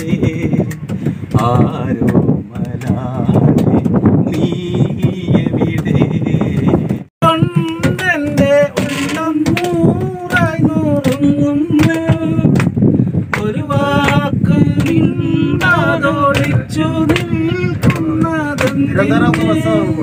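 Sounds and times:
man singing unaccompanied: 0:00.0 - 0:12.6, 0:13.3 - 0:20.0
sharp taps: 0:07.6 - 0:14.2, 0:15.6 - 0:19.5.

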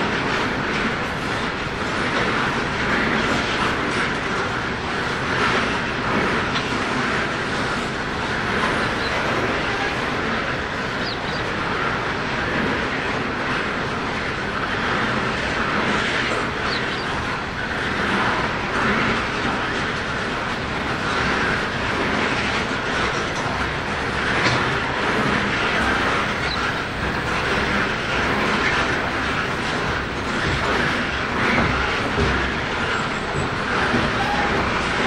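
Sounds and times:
train wheels rumbling on rails: 0:00.0 - 0:35.0
wheels clacking over rail joints: 0:00.0 - 0:35.0.

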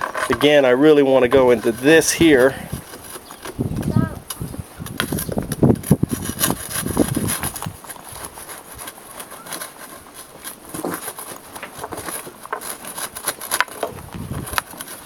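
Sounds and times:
charcoal clicks and crackles: 0:00.0 - 0:15.0
metal rod scraping charcoal: 0:00.0 - 0:15.0.

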